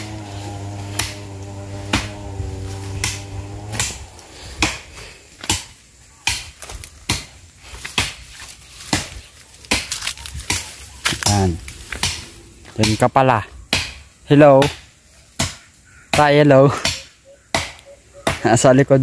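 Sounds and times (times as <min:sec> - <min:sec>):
steady hum: 0:00.0 - 0:06.2, 0:10.6 - 0:14.2
twigs snapping underfoot: 0:00.0 - 0:13.1
footsteps through dry undergrowth: 0:00.0 - 0:13.3.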